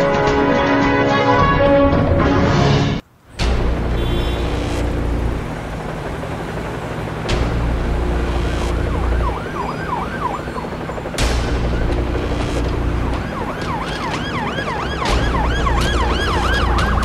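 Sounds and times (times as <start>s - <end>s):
steady low rumble: 3.4s - 9.4s
siren yelping: 8.4s - 17.0s.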